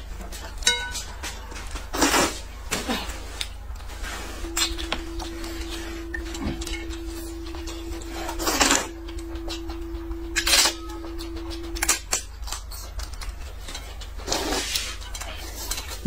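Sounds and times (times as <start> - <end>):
steady low tone: 3.8 - 14.4.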